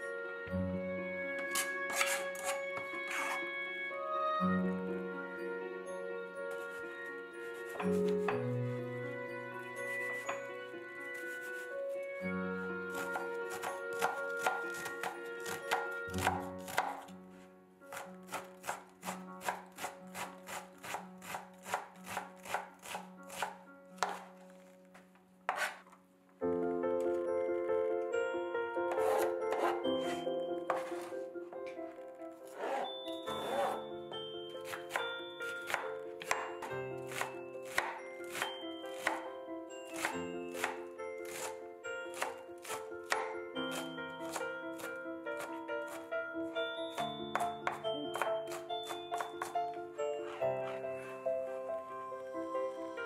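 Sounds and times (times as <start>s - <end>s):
background music: 0.0s - 53.0s
knife chopping onion on board: 1.5s - 3.4s, 7.6s - 8.4s, 12.9s - 17.1s, 17.9s - 24.3s, 25.5s - 25.8s, 28.9s - 31.1s, 34.6s - 39.3s, 39.9s - 46.0s, 47.0s - 49.6s.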